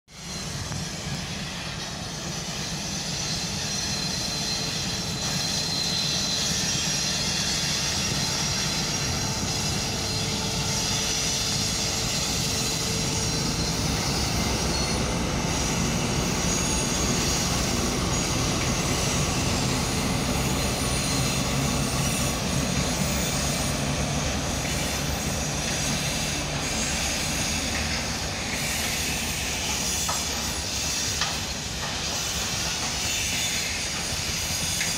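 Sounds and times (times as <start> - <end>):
diesel locomotive engine drone: 0.1 - 34.9
wagons rolling on rails: 3.2 - 34.9.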